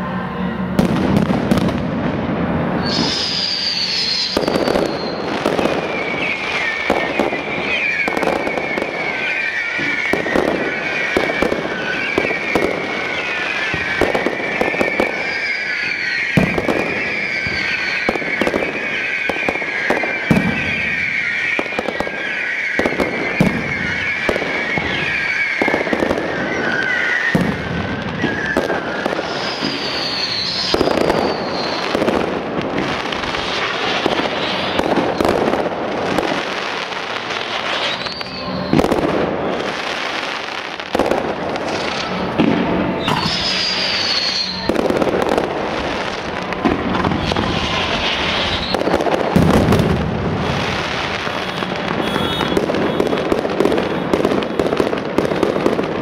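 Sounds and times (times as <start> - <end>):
fireworks bangs and crackling: 0.0 - 56.0
short falling whistles: 2.8 - 32.0, 43.0 - 44.7
shrill wavering whistle: 2.8 - 35.5, 36.2 - 40.5, 43.0 - 45.0, 47.1 - 49.2.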